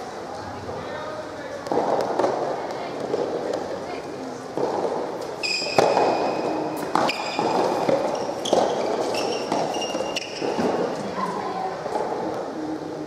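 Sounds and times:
racket hitting tennis ball: 4.5s - 11.0s
shoe squeaks: 5.4s - 11.0s.

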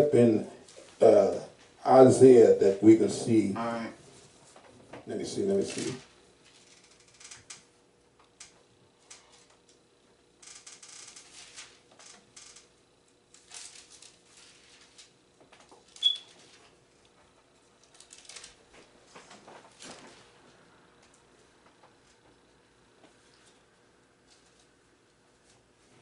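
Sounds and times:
paper pages rustling: 13.4s - 16.8s, 17.8s - 20.4s.

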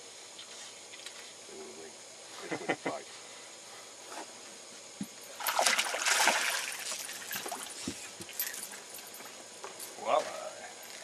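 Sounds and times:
fish splashing at the surface: 5.4s - 7.8s
water trickling off a net: 5.4s - 8.0s.

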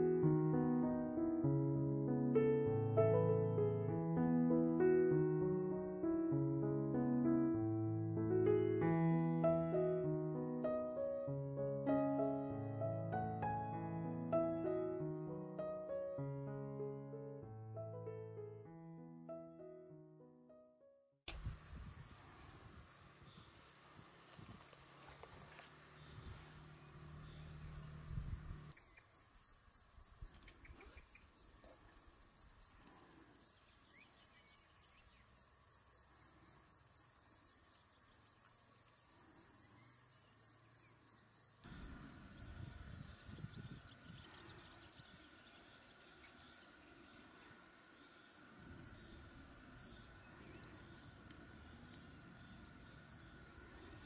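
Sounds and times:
insects chirring: 21.3s - 54.0s.

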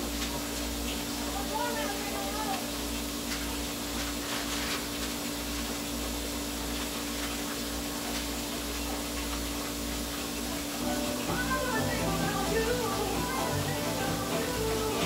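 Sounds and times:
low rumble and hiss: 10.7s - 15.0s.

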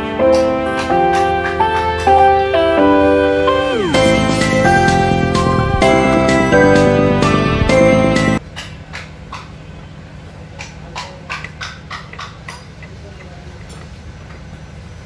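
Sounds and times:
steady low hum: 3.5s - 8.4s.

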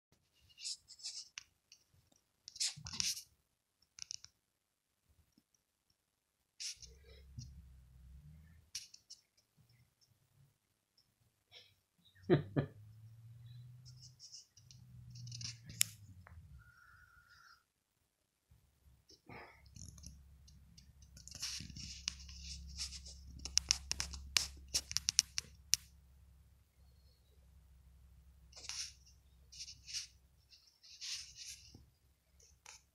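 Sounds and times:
close-up scratching and rustling: 0.2s - 1.9s, 2.5s - 3.3s, 13.8s - 16.1s, 19.6s - 25.9s, 28.5s - 32.9s
sharp clicks and scrapes: 13.8s - 16.4s, 19.6s - 25.9s.

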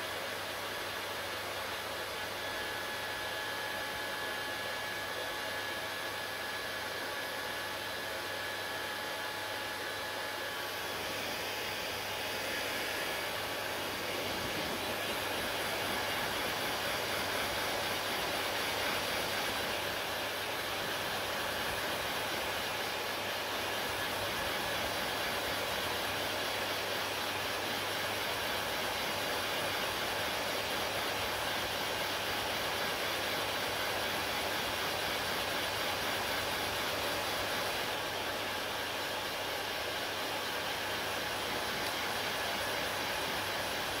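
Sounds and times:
hair dryer blowing: 0.0s - 44.0s.

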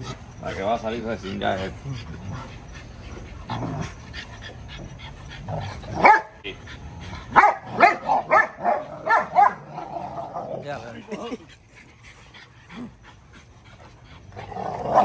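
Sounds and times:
dogs barking: 5.8s - 10.5s.

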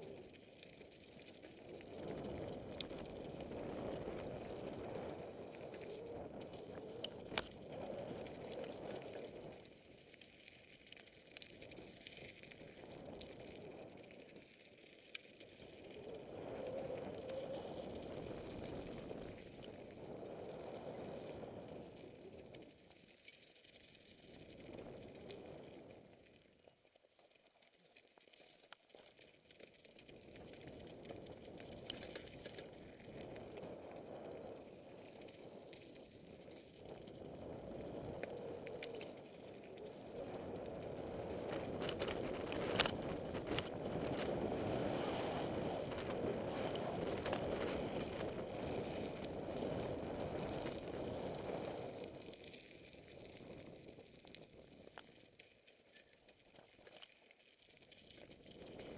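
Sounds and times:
bike rattling: 40.5s - 51.1s.

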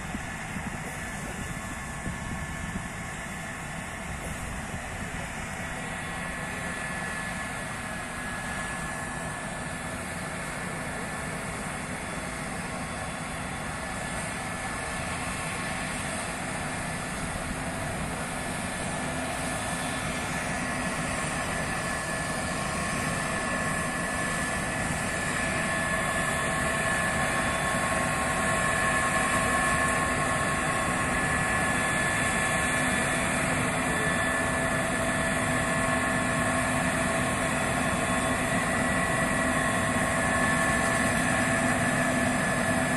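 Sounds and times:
combine harvester droning: 0.0s - 42.9s.

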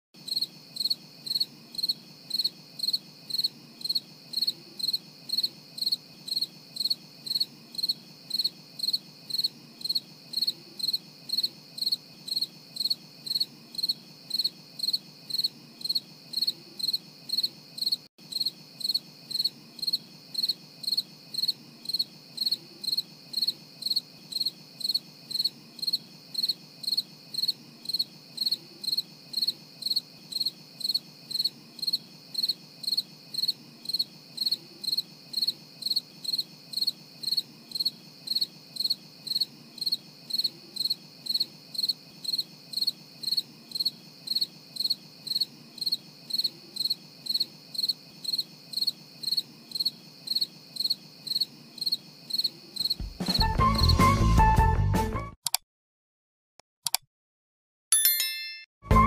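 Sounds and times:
insect chirping: 0.2s - 53.2s.

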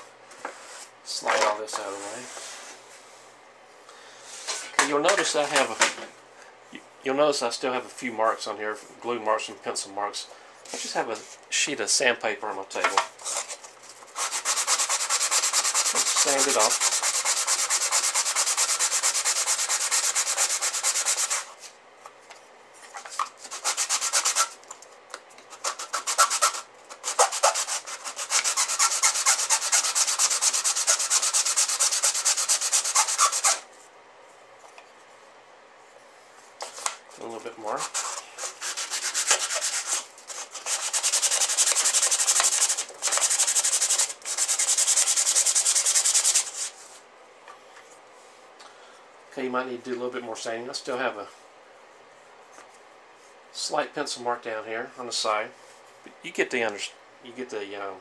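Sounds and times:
wooden box rubbed on sandpaper: 14.1s - 21.5s, 23.4s - 24.6s, 25.6s - 33.6s, 37.8s - 46.9s.

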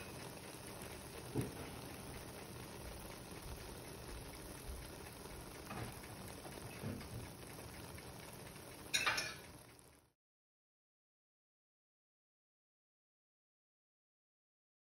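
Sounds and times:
food sizzling in a wok: 0.0s - 10.0s.

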